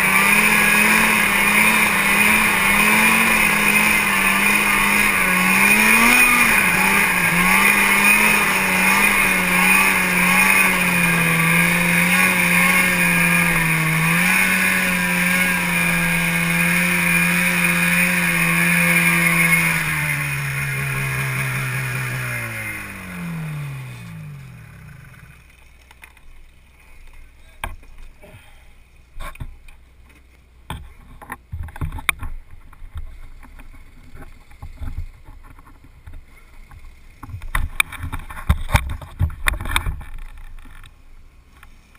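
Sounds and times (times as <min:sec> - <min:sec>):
snowmobile engine running: 0:00.0 - 0:27.1.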